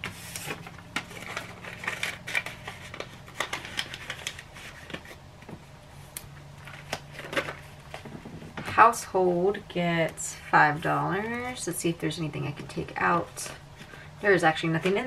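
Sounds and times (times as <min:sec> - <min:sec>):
paper and plastic pages rustling: 0:00.0 - 0:05.6, 0:06.6 - 0:08.5.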